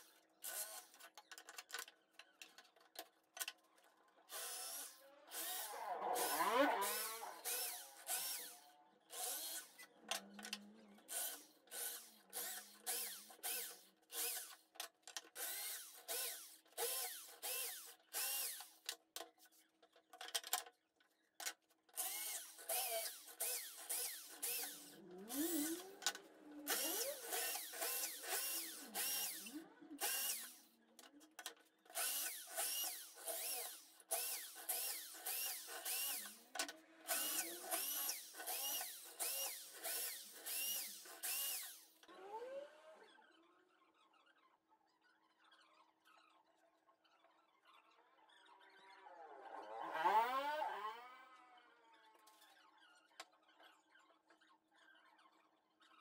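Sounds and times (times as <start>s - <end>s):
electric drill boring wood: 0.0s - 1.0s, 4.3s - 14.6s, 15.4s - 18.9s, 22.0s - 30.7s, 31.9s - 43.2s.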